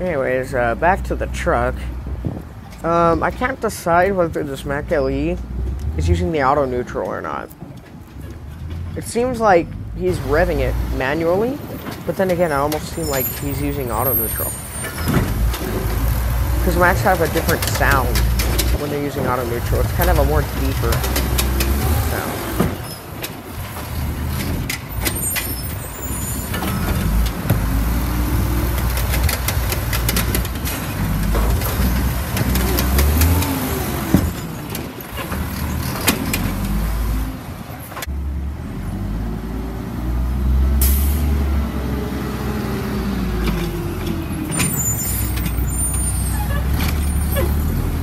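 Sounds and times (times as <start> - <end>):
garbage truck engine revving: 8.6 - 48.0
clanks from hydraulic arm and carts: 11.2 - 36.9, 43.4 - 48.0.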